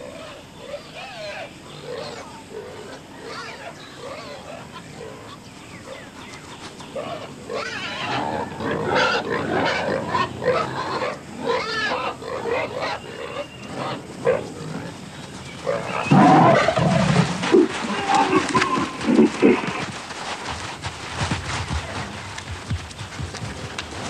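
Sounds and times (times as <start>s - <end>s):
wild pigs grunting and squealing: 0.0s - 6.0s, 7.0s - 19.9s.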